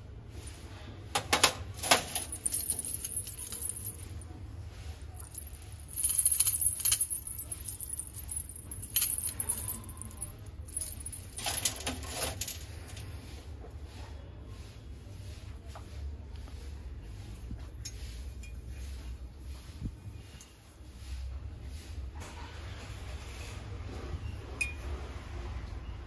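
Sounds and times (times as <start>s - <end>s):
small metal objects clinking: 1.7s - 4.2s, 5.2s - 13.0s.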